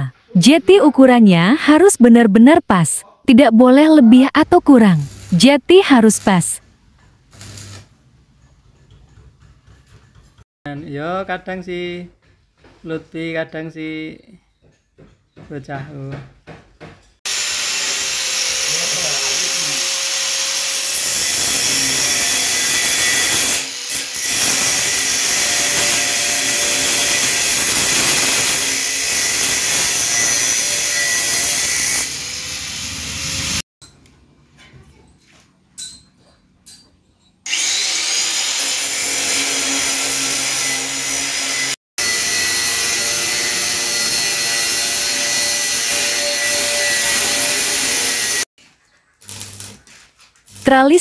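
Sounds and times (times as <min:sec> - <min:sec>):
angle grinder on steel: 0:05.0 - 0:05.4, 0:07.3 - 0:07.9, 0:17.3 - 0:33.6, 0:37.5 - 0:48.5.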